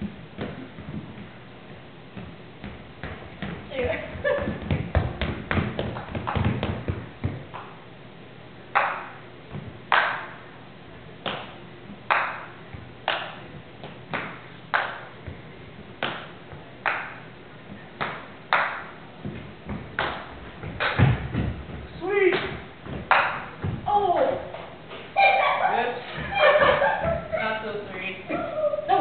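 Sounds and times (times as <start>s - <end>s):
paddles hitting ball: 0.0s - 7.8s, 8.7s - 10.4s, 11.2s - 25.1s.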